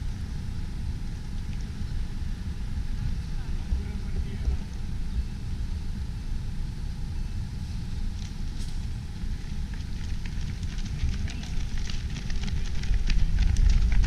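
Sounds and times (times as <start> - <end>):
wind buffeting microphone: 0.0 - 14.0
footsteps of runners on asphalt: 8.6 - 14.0.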